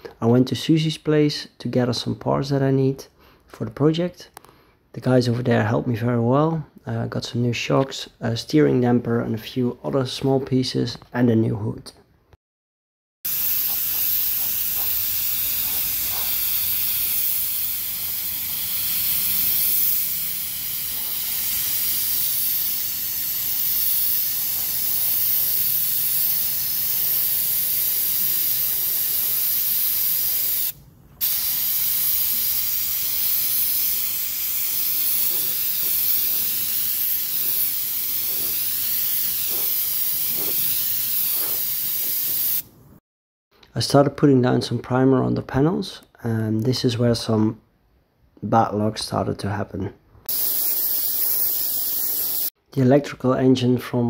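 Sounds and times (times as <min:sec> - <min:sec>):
paint spray gun hissing: 0:13.3 - 0:42.7, 0:50.3 - 0:52.6.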